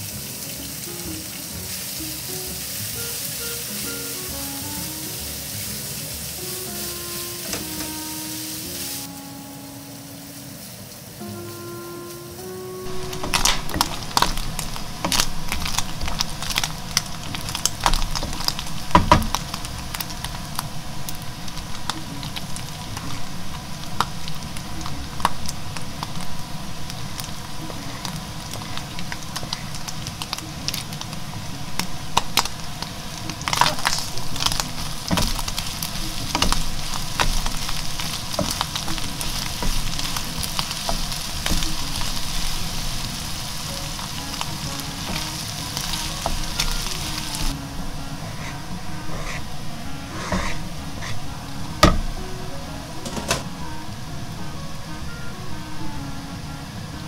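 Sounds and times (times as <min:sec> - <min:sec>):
meat sizzling in a frying pan: 0:00.0 - 0:10.7, 0:12.9 - 0:47.6
wooden spatula scraping a pan: 0:33.4 - 0:47.5, 0:48.2 - 0:51.2.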